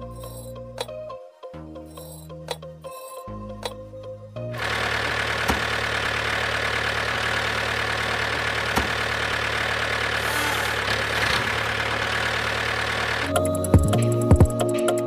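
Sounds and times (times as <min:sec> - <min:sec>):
small toy motor humming: 0:04.6 - 0:13.4.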